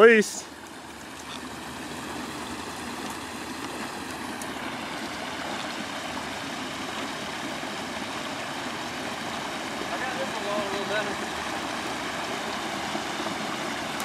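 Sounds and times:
water rushing through dam breach: 0.0 - 14.0.

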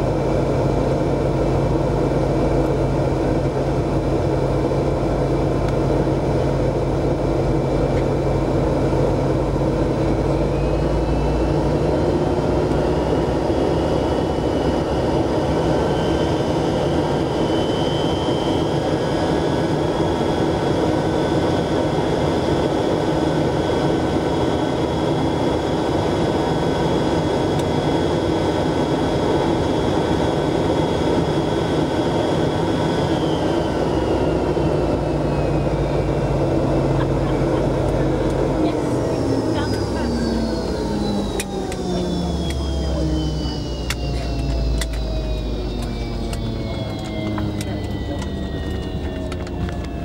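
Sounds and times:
high engine whine: 0.0 - 50.0
jet engines low rumble: 0.0 - 50.0.

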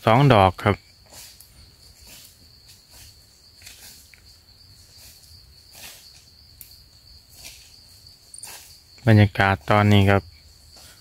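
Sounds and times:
high-pitched insect drone: 0.0 - 11.0
footsteps in dry leaves: 1.0 - 6.4.

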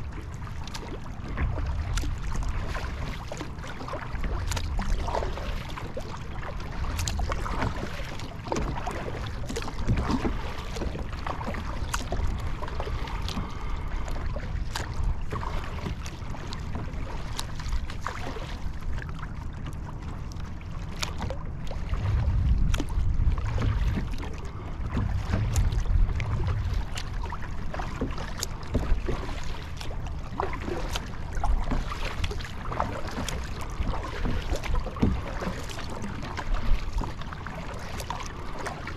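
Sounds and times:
water sloshing against hull: 0.0 - 38.9
wind rumbling on microphone: 0.0 - 38.9.

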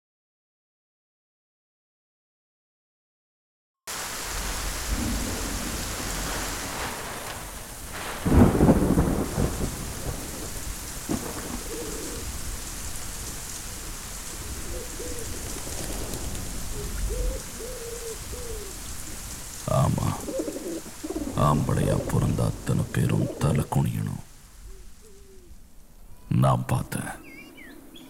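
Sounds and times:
heavy rain pouring: 3.9 - 25.0, 26.3 - 27.2
thunder rumble: 4.0 - 13.1, 13.7 - 24.3
pigeon cooing: 11.5 - 12.3, 14.4 - 16.0, 16.6 - 18.9, 19.7 - 25.5.

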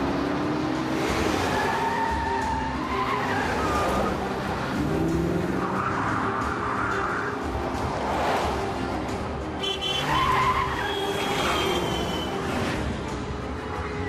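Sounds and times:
background music: 0.0 - 14.0
car engines revving: 0.0 - 14.0
tyres squealing: 9.6 - 12.5.

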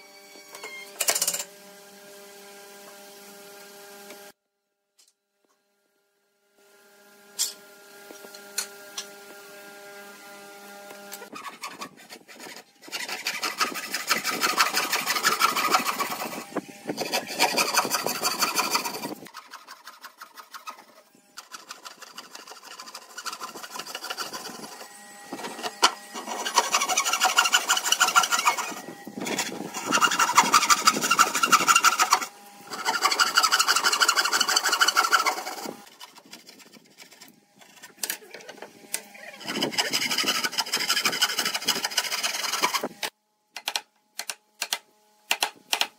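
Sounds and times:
hand saw cutting wood: 7.3 - 43.2.

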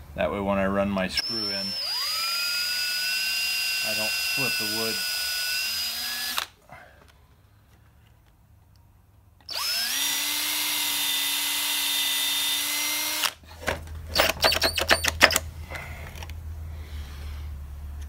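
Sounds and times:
cordless drill drilling metal: 1.2 - 6.6, 9.4 - 13.4, 14.1 - 15.4
sharp clicks and knocks: 13.6 - 15.5.

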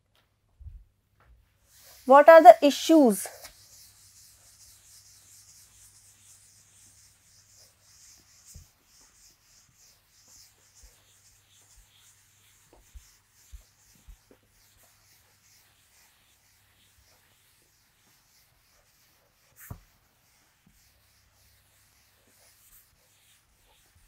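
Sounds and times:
duster rubbing chalkboard: 1.5 - 24.0.

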